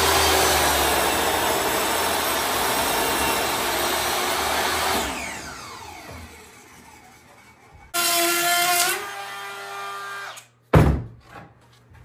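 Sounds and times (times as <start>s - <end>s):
saw blade winding down: 0.0s - 7.6s
power saw cutting wood: 0.0s - 10.5s.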